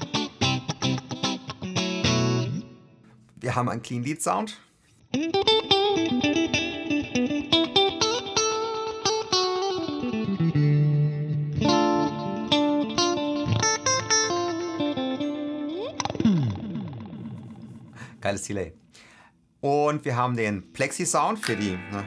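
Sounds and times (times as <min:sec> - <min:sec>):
clean electric guitar with delay: 0:05.2 - 0:18.0, 0:21.4 - 0:22.0.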